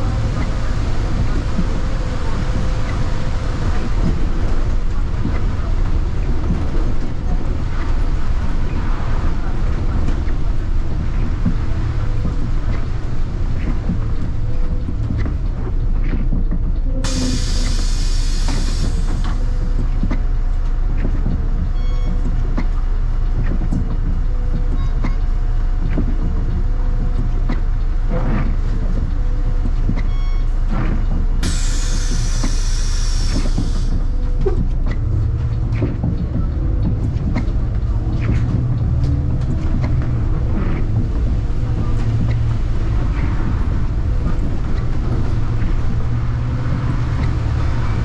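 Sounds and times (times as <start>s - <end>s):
bus engine and road rumble: 0.0s - 48.0s
compressed air hiss: 17.1s - 19.4s, 31.4s - 34.1s.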